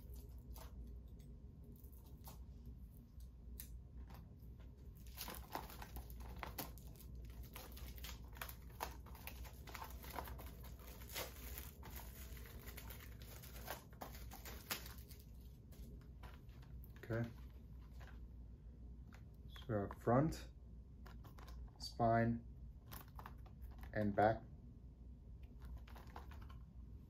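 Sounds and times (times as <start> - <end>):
packaging crinkling and rustling: 4.9 - 18.2.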